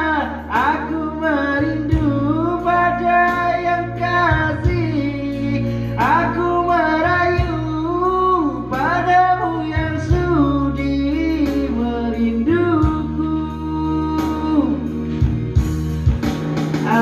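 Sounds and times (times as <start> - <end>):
person singing into a microphone: 0.0 - 15.5
slow ballad backing music: 0.0 - 17.0.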